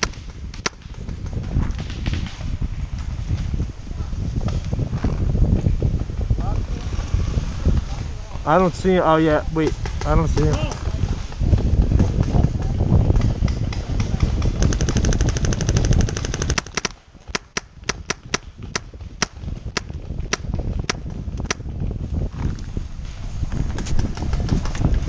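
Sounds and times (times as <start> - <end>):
paintball markers firing: 0.0 - 2.3, 14.0 - 21.6.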